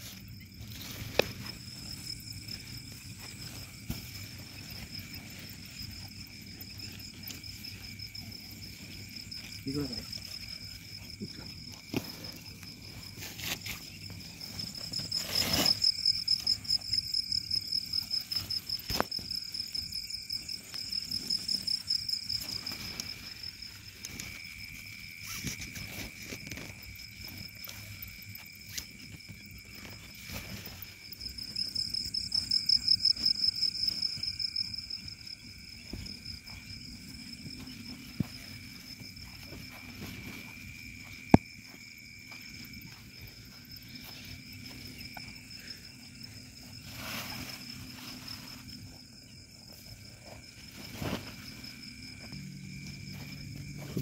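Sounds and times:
crickets trilling: 0.0 - 54.0
low insect tone: 0.0 - 54.0
tent fabric rustling and clicking: 46.6 - 54.0.

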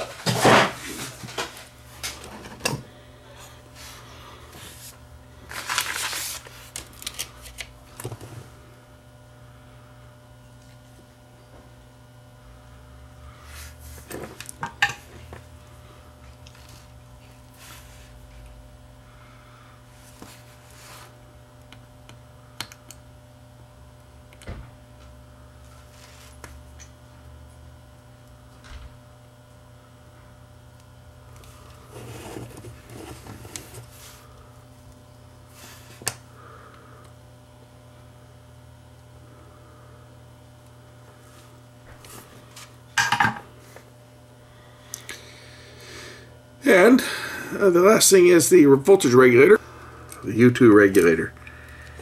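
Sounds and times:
low electrical hum: 0.0 - 52.0.

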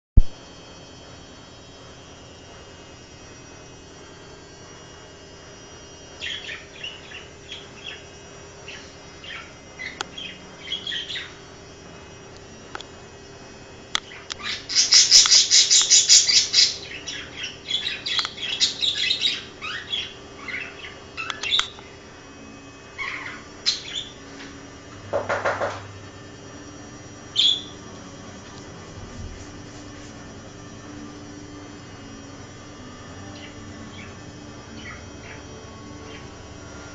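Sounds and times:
budgerigar chirping: 8.7 - 11.4, 14.1 - 21.8, 23.0 - 24.2, 27.3 - 27.8, 33.3 - 35.4
budgerigar pulsed call: 14.1 - 21.6, 27.3 - 27.8, 33.3 - 35.4.

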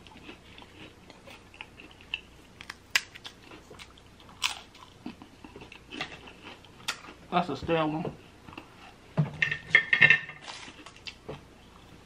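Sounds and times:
crisp cracker crunching: 0.0 - 7.2.

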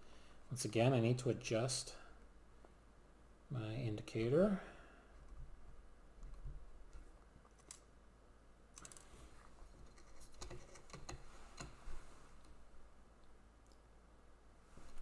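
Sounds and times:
faint clicks and metallic taps: 9.7 - 11.8.

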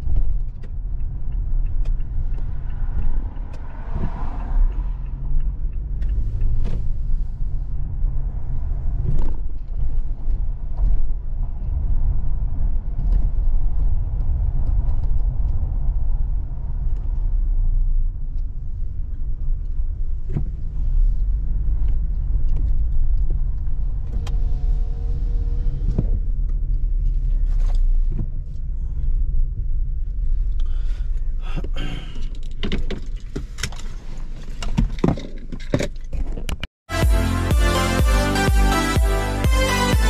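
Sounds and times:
car road rumble from inside: 0.0 - 38.1
electronic music with steady beat: 36.9 - 40.0.

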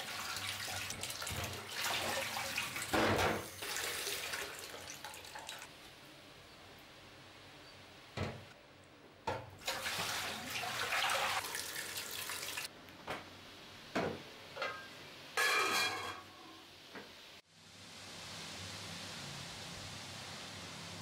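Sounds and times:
water splashing from pot: 0.0 - 5.7, 9.6 - 12.7
enamel pots clanking: 14.6 - 16.4.

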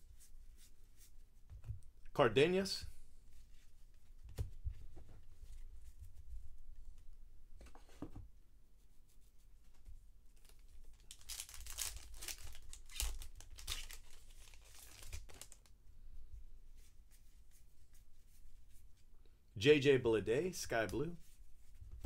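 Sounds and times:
foil wrapper tearing and crinkling: 10.9 - 15.7.

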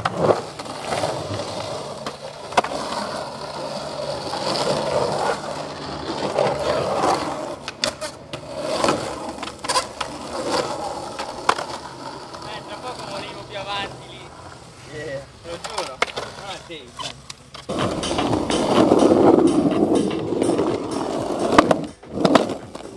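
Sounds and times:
skateboard clacking on concrete: 0.0 - 14.5, 15.4 - 22.9
skateboard wheels rolling on concrete: 0.0 - 22.9.

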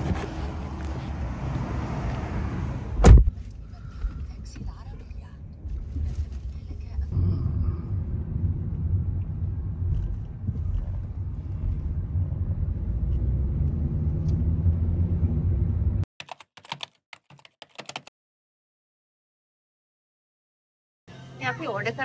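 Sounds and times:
road and engine rumble inside car: 0.0 - 16.1.

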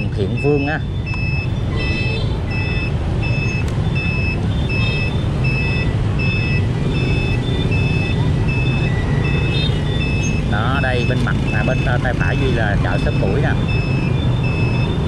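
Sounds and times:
turn signal electronic beeps: 0.0 - 15.0.

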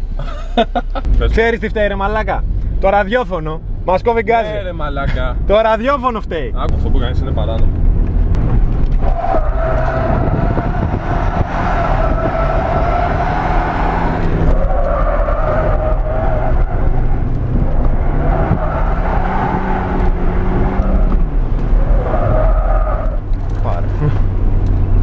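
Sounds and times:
car engine under throttle: 5.2 - 25.0.

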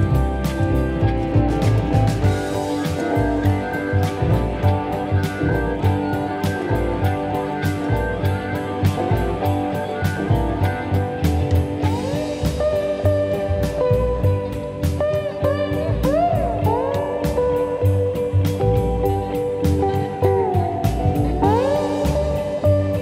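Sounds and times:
instrumental music: 0.0 - 23.0
steady drum beat: 0.0 - 23.0.

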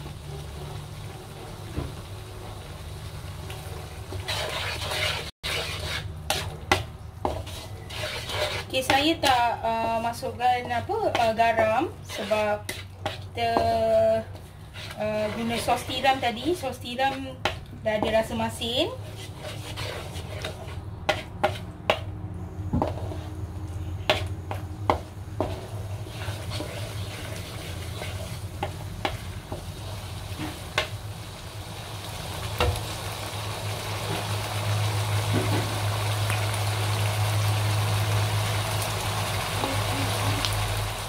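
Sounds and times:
sauce sizzling and bubbling: 0.0 - 41.0
spatula scraping a wok: 3.7 - 22.2, 22.8 - 31.0.

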